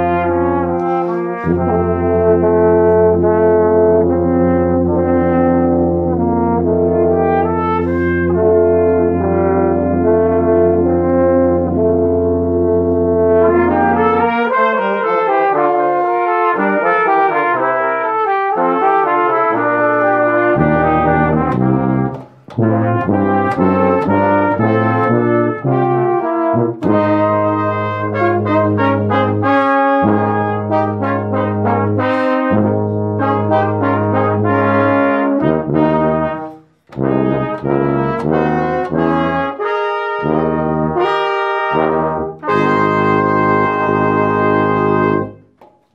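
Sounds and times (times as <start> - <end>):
brass ensemble playing: 0.0 - 45.7.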